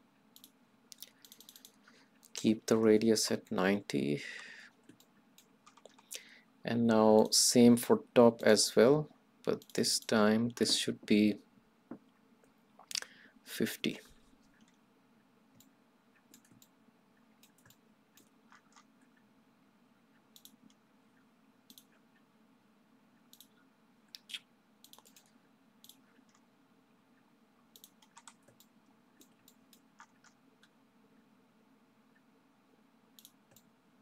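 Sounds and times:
faint room hum: 0:00.0 - 0:34.0
computer mouse clicks: 0:00.4 - 0:01.9, 0:04.8 - 0:06.2, 0:09.5 - 0:10.8, 0:15.5 - 0:16.7, 0:17.4 - 0:19.2, 0:20.1 - 0:20.8, 0:21.7 - 0:22.2, 0:23.3 - 0:26.4, 0:27.7 - 0:30.8, 0:33.1 - 0:33.7.

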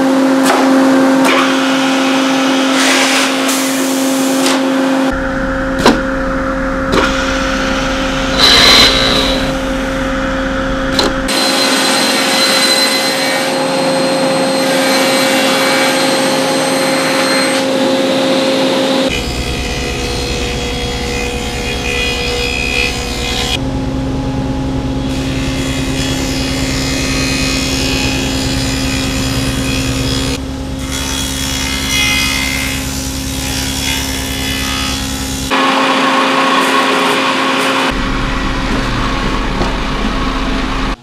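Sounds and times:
saw cutting wood: 0:00.4 - 0:05.1, 0:06.9 - 0:10.2, 0:11.2 - 0:23.6, 0:25.0 - 0:38.0
machine motor hum: 0:04.9 - 0:30.7.

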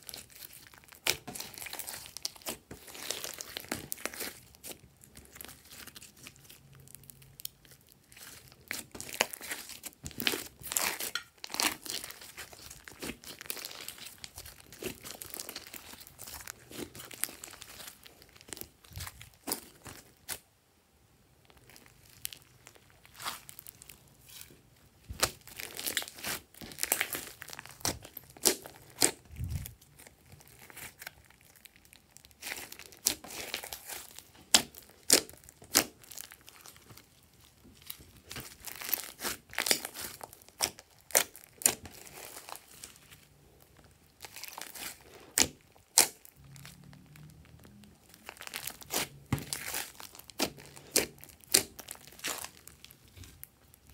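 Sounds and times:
slime popping and crackling: 0:00.0 - 0:20.4, 0:25.0 - 0:53.9
slime squishing: 0:00.0 - 0:20.4, 0:21.4 - 0:53.9.

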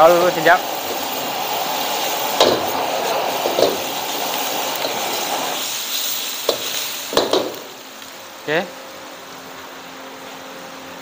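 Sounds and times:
food sizzling in a wok: 0:00.0 - 0:10.4
metal ladle clanking on wok: 0:06.5 - 0:07.7.

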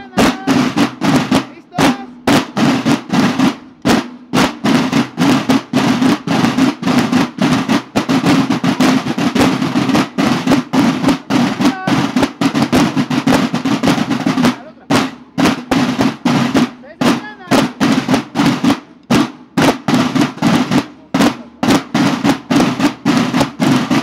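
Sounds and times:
field drums playing march cadence: 0:00.0 - 0:24.0.

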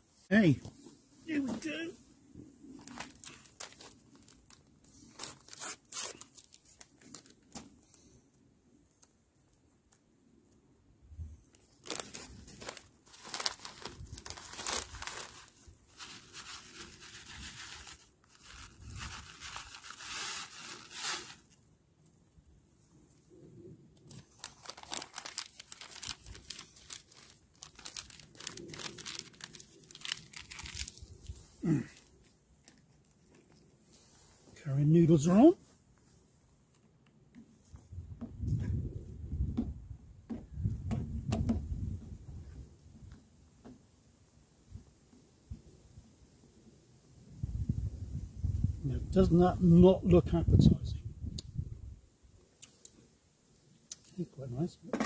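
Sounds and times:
plastic packet crinkling and tearing: 0:02.8 - 0:07.7, 0:11.6 - 0:21.6, 0:24.0 - 0:33.8.

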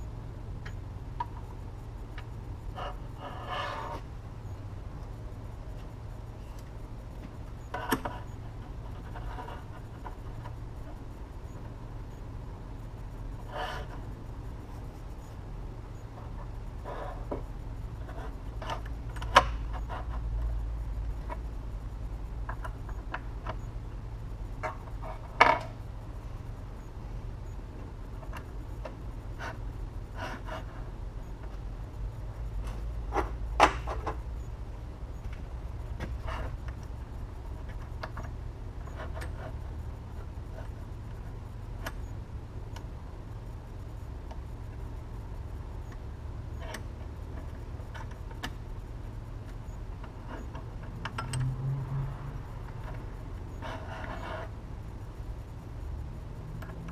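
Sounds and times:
low steady hum: 0:00.0 - 0:56.9.

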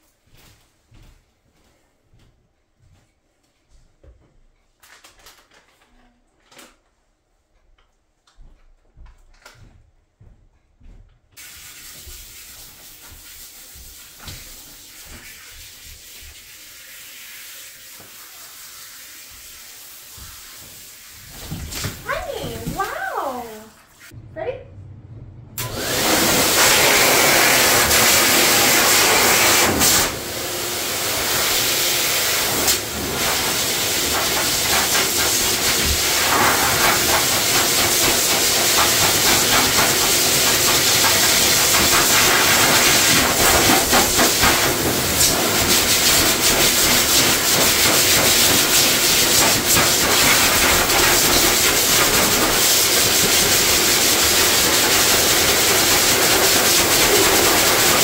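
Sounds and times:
pet dryer blowing air: 0:25.6 - 0:58.0.

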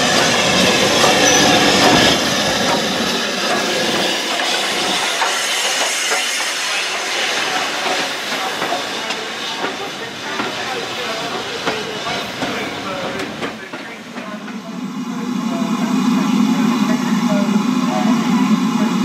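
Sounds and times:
train wheels clicking over rail joints: 0:00.0 - 0:14.7
steam locomotive hissing: 0:00.0 - 0:19.0.

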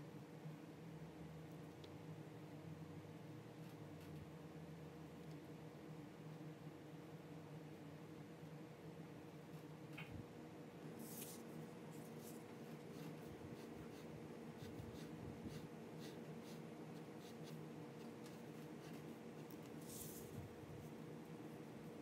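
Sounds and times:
steady low hum: 0:00.0 - 0:22.0
pen scratching on paper: 0:12.9 - 0:20.2.

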